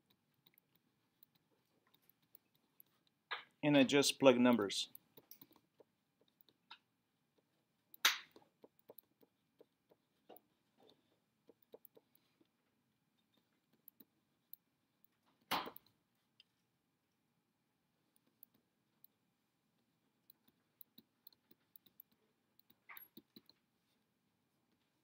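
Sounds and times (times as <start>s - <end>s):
pen tapping on a tablet: 7.4s - 12.3s.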